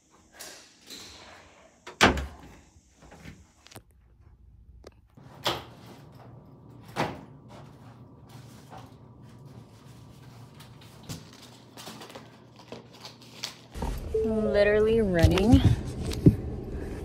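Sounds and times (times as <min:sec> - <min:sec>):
low steady hum: 0:13.8 - 0:17.0.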